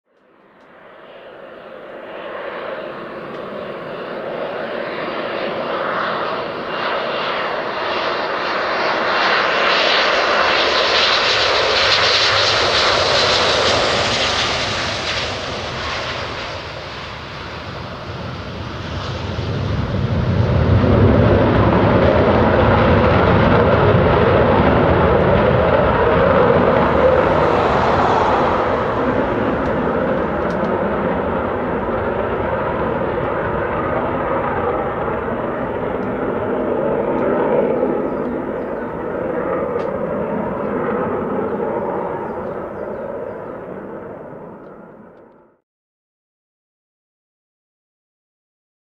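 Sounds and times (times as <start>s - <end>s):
jet engine whine and rumble: 0.1s - 45.6s.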